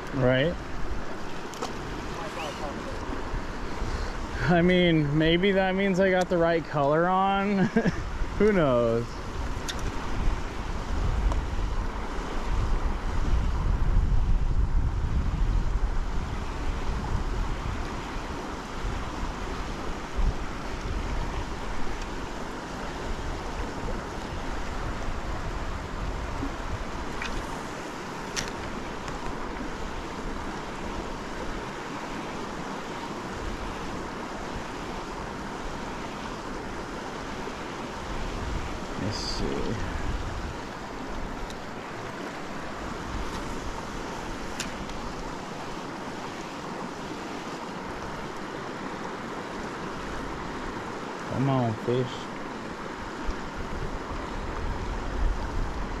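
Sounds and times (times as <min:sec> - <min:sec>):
river water rushing: 0:00.0 - 0:56.0
wind buffeting microphone: 0:07.8 - 0:32.0, 0:33.2 - 0:47.1, 0:53.0 - 0:56.0.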